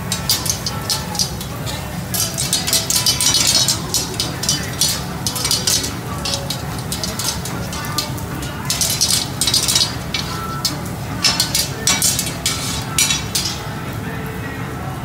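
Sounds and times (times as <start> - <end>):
metal sticks scraping on griddle: 0.0 - 14.0.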